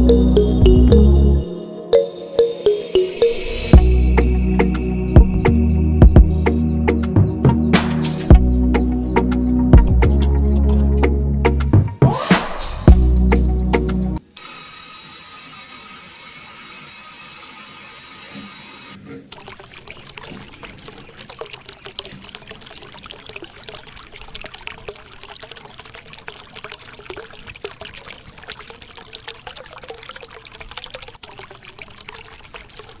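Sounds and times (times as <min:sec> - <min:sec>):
water stream splashing into puddle: 0:19.3 - 0:33.0.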